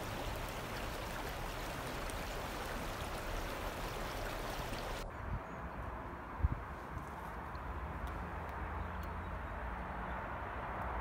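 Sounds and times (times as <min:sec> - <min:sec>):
water rushing through sluice gate: 0:00.0 - 0:05.0.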